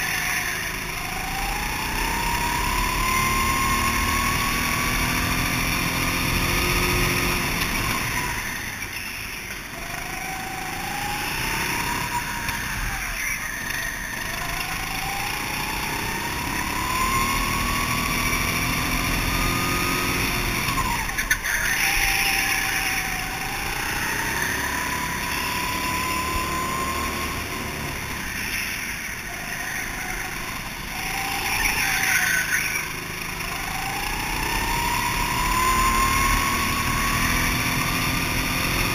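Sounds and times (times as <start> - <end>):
go-kart engine revving: 0.0 - 38.9.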